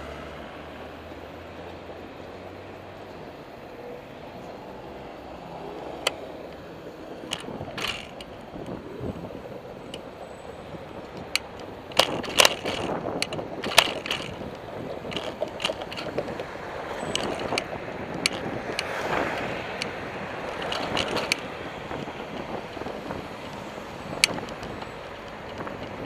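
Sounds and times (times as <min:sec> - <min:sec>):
passing car traffic: 0:00.0 - 0:26.0
bicycle rattling over bumps: 0:01.0 - 0:26.0
wind noise on microphone: 0:05.5 - 0:26.0.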